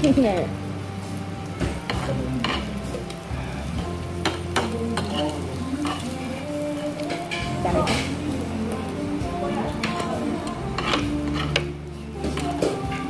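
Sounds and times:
meat sizzling in a pan: 0.0 - 13.0
utensils clicking against pan: 1.8 - 3.2, 4.2 - 8.2, 9.7 - 13.0.

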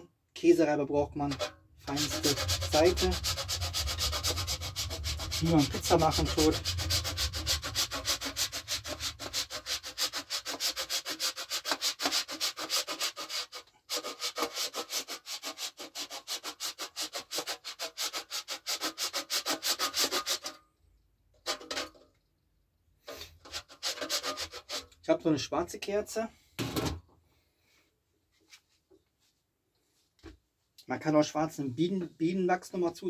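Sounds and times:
wax rasping on metal grater: 1.3 - 20.6, 23.4 - 25.0.

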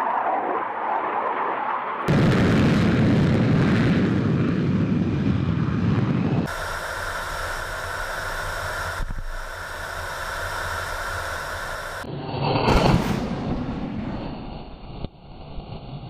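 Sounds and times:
jet fighter roar: 0.0 - 16.0
jet whine inside cockpit: 0.0 - 16.0.

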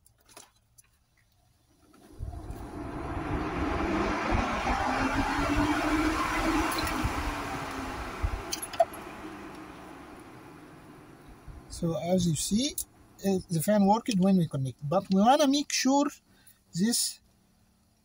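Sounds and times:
electric cooling fan running: 2.0 - 13.5.

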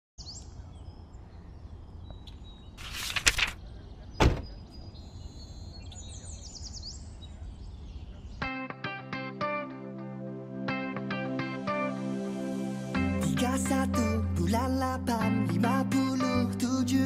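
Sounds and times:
birds chirping: 0.2 - 9.3
sharp heavy thump: 4.2 - 4.5
music with plucked notes: 8.4 - 14.4.

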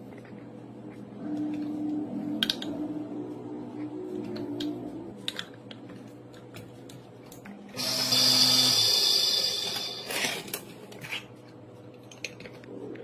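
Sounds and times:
small electric motor whirring: 7.8 - 10.5.

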